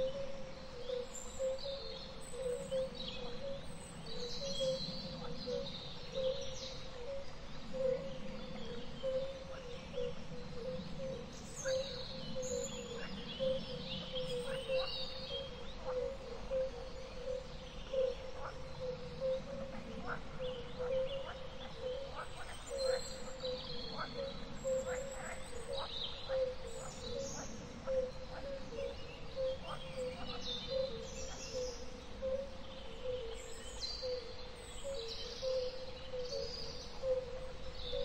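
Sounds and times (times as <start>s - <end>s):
birds chirping and calling: 10.7s - 38.0s.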